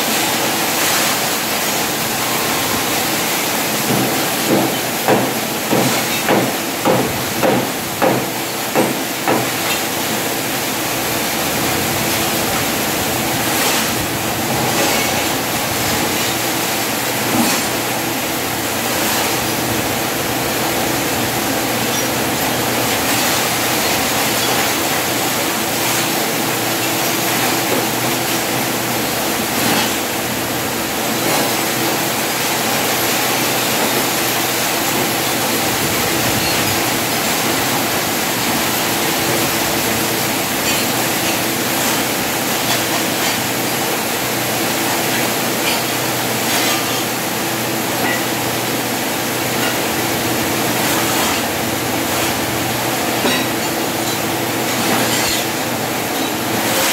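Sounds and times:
hammer striking steel: 3.9 - 9.8.

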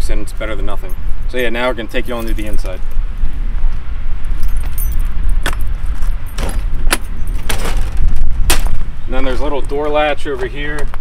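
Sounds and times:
steady low rumble: 0.0 - 11.0
keys jangling: 4.3 - 8.0.

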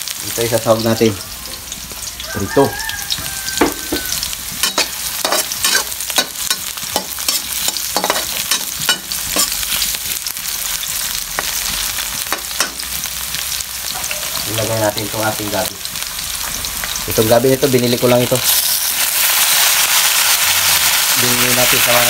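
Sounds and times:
food sizzling in a pan: 0.0 - 22.0
spatula scraping a pan: 3.6 - 10.0.

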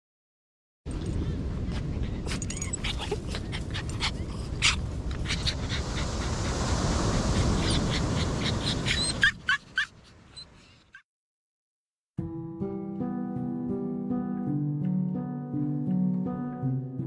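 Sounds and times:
dog panting: 1.8 - 6.7.

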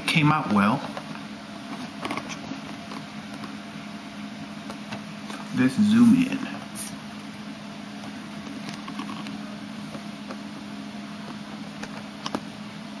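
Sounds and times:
steady low hum: 0.0 - 13.0
room hiss: 5.5 - 7.8.

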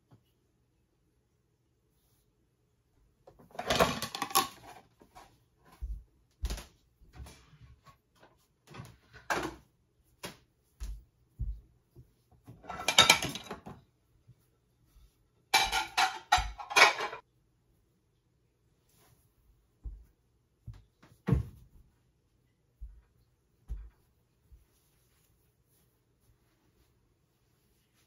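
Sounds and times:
dishes clattering: 12.6 - 13.8, 15.5 - 17.2.

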